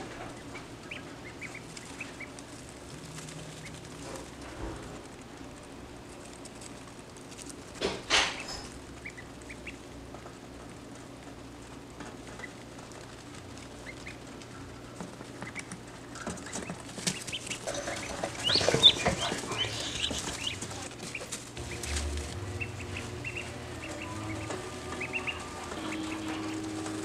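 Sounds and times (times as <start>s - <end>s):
ducklings peeping: 0.0s - 5.1s, 6.1s - 27.0s
shuffling in wood shavings: 17.1s - 27.0s.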